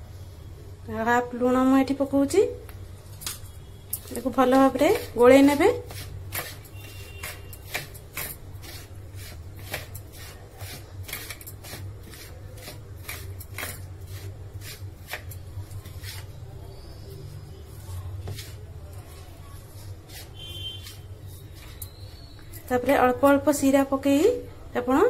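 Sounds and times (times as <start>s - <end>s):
hand stirring flour in bowl: 3.9s - 23.5s.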